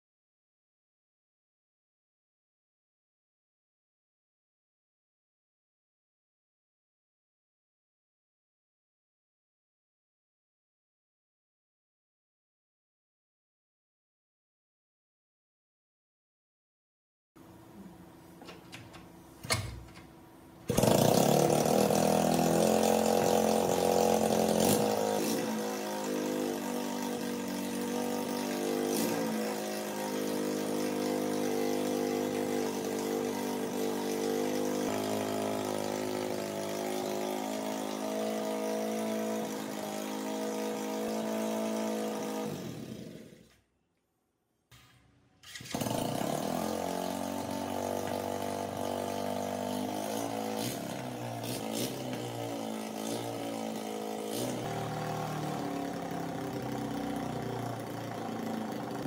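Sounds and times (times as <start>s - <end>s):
motorcycle engine starting and idling: 18.3s - 41.4s, 44.8s - 59.0s.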